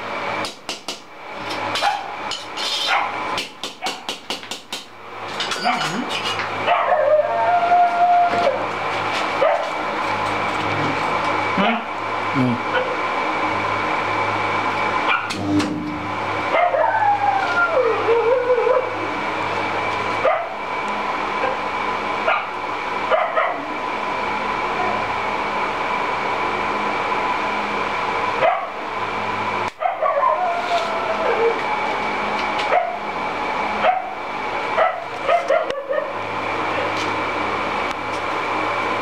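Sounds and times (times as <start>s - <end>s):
transformer hum: 4.9s - 39.0s
high-pitched whine: 5.0s - 39.0s
wavering high cry: 6.7s - 8.7s, 16.6s - 19.0s.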